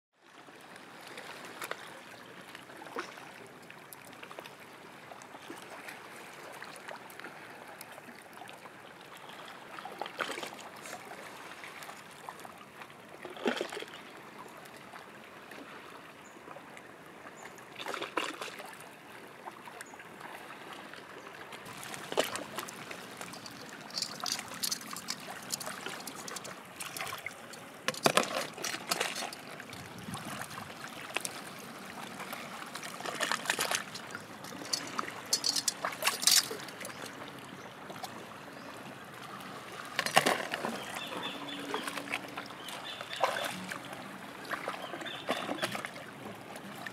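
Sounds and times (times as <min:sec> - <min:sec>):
water trickling over sand: 0:21.6 - 0:37.6.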